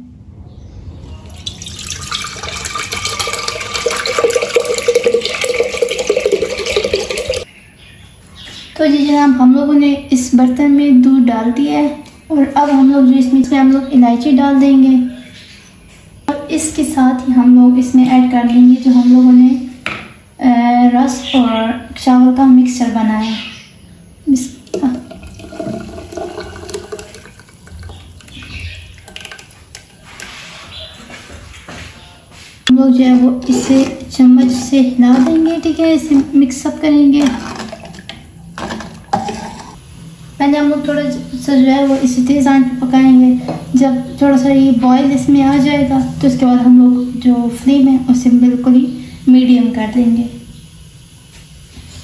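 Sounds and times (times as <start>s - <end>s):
milk pouring into clay pot: 1.2s - 7.5s, 24.6s - 30.4s, 37.2s - 39.8s
bubbling splash: 1.4s - 7.4s, 24.7s - 29.9s, 37.2s - 39.8s.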